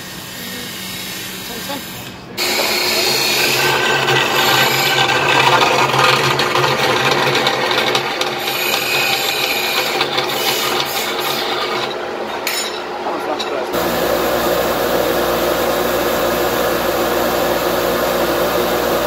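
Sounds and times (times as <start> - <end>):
saw blade rasping in metal: 1.0 - 12.8
band saw motor hum: 2.4 - 11.9, 13.8 - 19.0.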